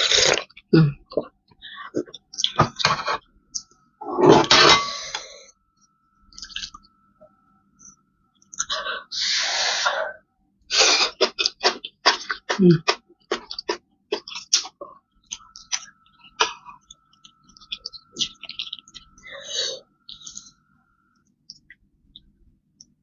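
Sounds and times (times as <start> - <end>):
wet chewing and mouth clicks: 6.3 - 6.9, 11.0 - 19.2, 20.0 - 20.6.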